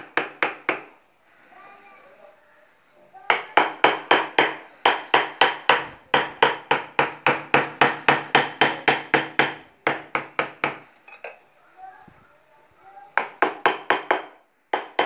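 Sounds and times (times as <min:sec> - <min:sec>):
mallet tapping chisel into wood: 0:03.3 - 0:10.8, 0:13.2 - 0:15.0.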